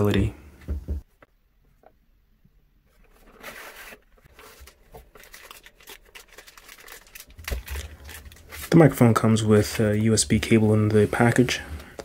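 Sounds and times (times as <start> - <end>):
cardboard box opening: 3.0 - 5.6
plastic bag crinkling: 4.3 - 9.0.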